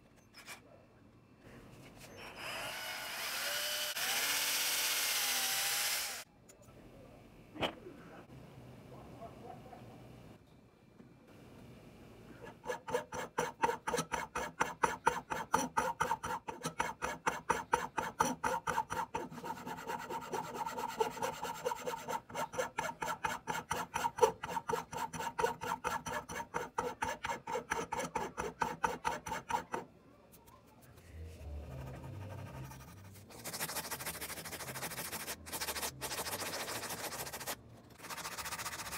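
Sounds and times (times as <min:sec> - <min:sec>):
hand tool rasping strokes: 0:12.4 - 0:29.8, 0:31.8 - 0:38.9.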